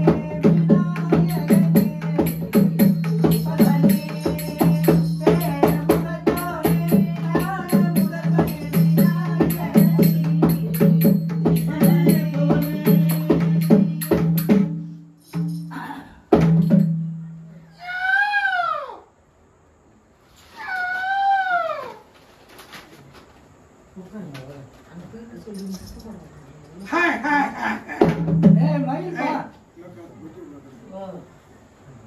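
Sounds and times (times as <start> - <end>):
hand drum played rhythmically: 0.0 - 15.6, 27.8 - 29.0
high metallic jingle: 1.4 - 16.0, 25.4 - 26.3.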